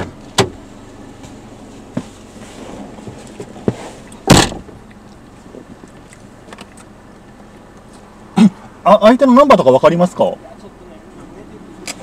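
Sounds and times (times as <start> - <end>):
car door clunking open and shut: 0.0 - 8.1.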